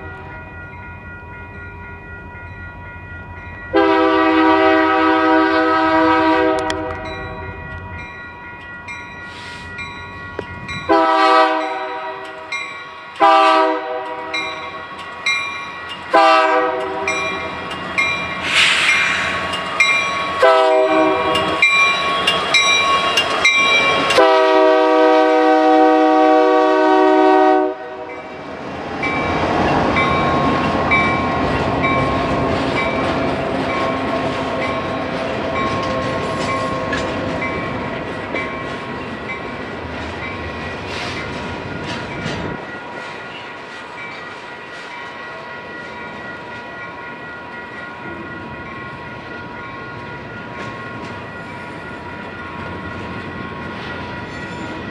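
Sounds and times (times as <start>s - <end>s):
train rumbling and rattling past: 0.0s - 54.9s
locomotive air horn blasts: 3.7s - 7.0s, 10.9s - 12.3s, 13.2s - 14.3s, 16.1s - 17.2s, 20.4s - 21.6s, 24.1s - 28.1s.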